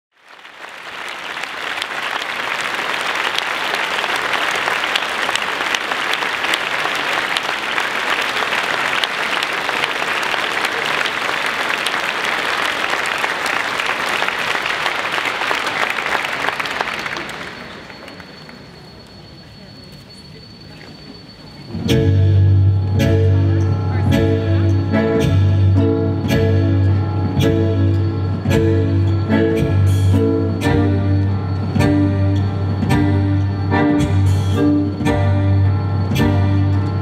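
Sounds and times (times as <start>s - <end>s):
large audience applauding: 0.1s - 18.8s.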